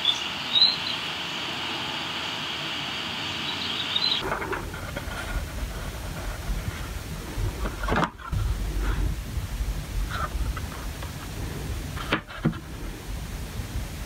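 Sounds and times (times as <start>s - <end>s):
faint high chirps: 0.0s - 4.2s
station hall background hiss: 0.0s - 14.0s
low rumbling background: 4.2s - 14.0s.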